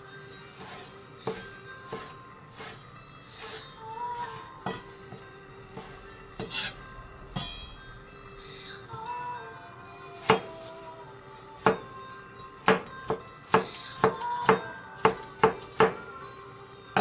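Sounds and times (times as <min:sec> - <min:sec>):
background music: 0:00.0 - 0:17.0
knife striking cutting board: 0:00.7 - 0:02.8.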